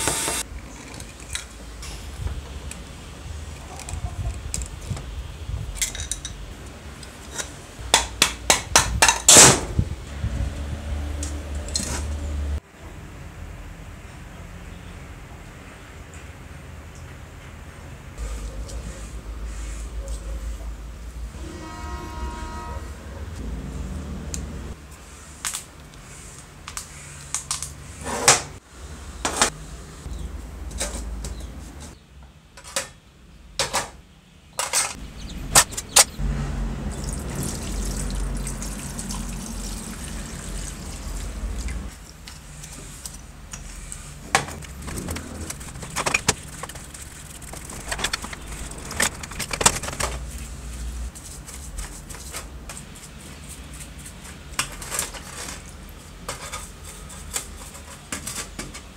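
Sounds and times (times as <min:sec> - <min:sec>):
wooden stick scraping grease: 0:42.5 - 0:50.2
bristle brush scrubbing: 0:43.8 - 0:50.0
metal parts clicking and knocking: 0:44.6 - 0:50.3.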